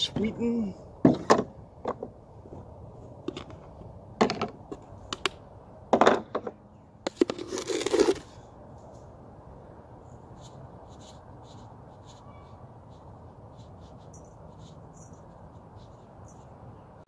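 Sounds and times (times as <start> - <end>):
sugar sliding inside canister: 7.1 - 8.4.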